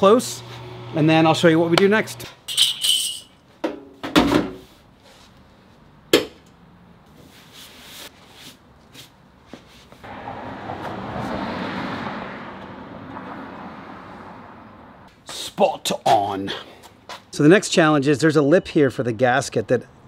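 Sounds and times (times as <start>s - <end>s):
vehicle passing: 10.0s - 15.1s.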